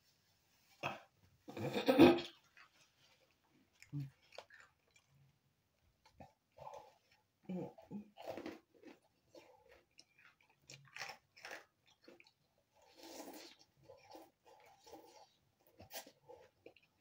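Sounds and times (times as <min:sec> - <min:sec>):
crunching rice crackers: 0:03.8 - 0:05.3, 0:08.1 - 0:17.0.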